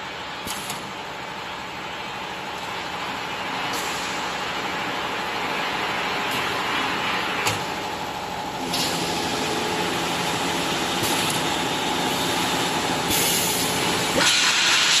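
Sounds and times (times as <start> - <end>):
conveyor and motors humming: 0.0 - 15.0.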